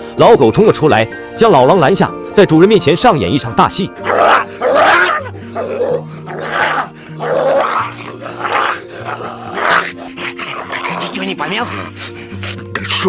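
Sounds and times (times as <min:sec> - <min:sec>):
background music with low notes: 0:00.0 - 0:13.0
cartoon snarls and growls: 0:04.0 - 0:12.2.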